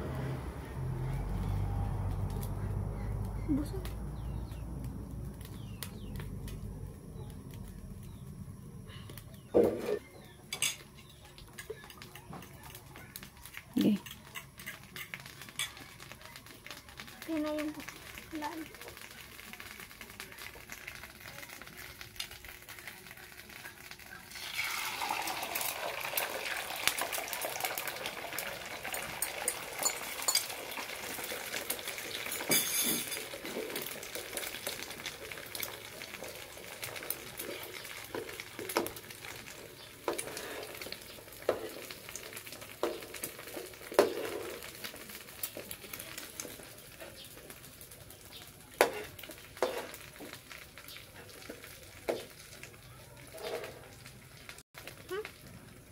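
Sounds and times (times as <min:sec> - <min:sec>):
metal utensils clinking on pan: 0:09.6 - 0:12.8, 0:13.4 - 0:16.1, 0:28.8 - 0:47.3, 0:48.8 - 0:52.4
egg sizzling in hot oil: 0:10.5 - 0:55.9.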